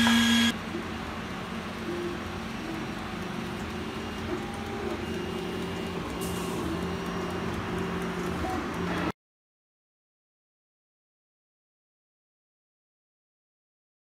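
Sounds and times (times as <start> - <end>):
machine hum: 0.0 - 9.1.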